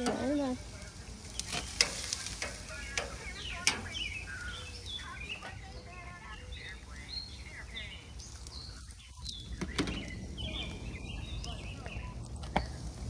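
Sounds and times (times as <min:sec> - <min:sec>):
birds chirping: 0:00.0 - 0:13.0
meat sizzling on a grill: 0:00.0 - 0:13.0
metal tongs clicking on grates: 0:01.4 - 0:04.0.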